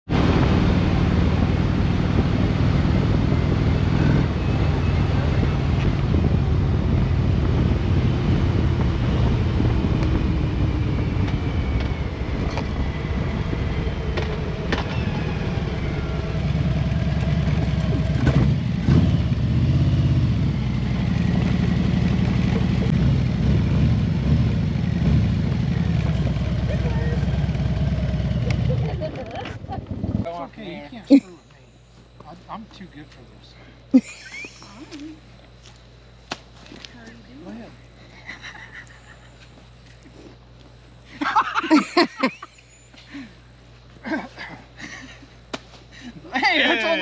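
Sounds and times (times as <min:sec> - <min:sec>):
wind rush: 0:00.1 - 0:16.4
motorcycle engine running: 0:00.1 - 0:30.3.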